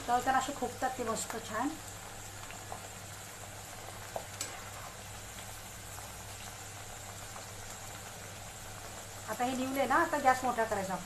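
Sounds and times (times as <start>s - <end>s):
corn sizzling in oil: 0.0s - 11.0s.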